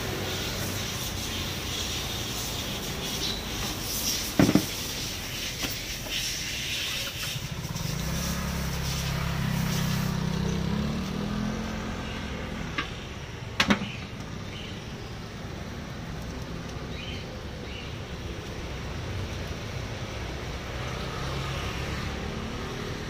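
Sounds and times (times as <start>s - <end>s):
motor scooter engine: 0.0s - 14.7s.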